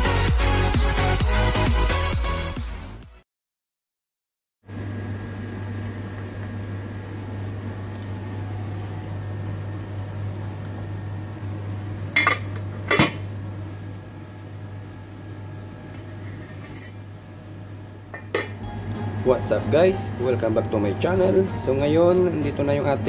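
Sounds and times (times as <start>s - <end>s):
steady low hum: 4.7s - 23.0s.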